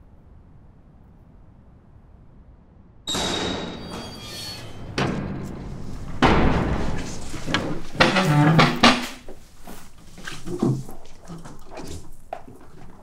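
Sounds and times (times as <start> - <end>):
door banging: 3.1 - 12.0
knocks and thuds: 3.1 - 13.0
chairs shifting: 3.8 - 13.0.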